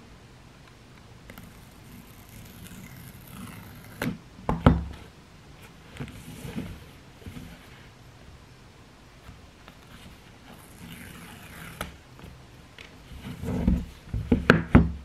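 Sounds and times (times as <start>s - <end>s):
cardboard rustling and scratching: 13.0s - 14.9s.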